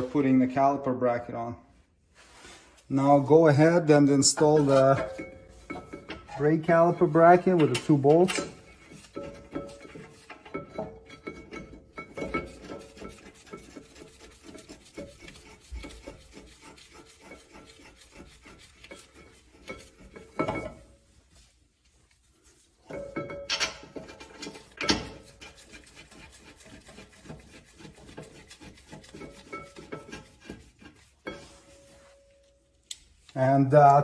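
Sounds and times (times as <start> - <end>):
metal scraping: 2.2 - 21.0, 22.8 - 32.7
tool clanking on metal bracket: 4.4 - 12.5, 22.9 - 25.2.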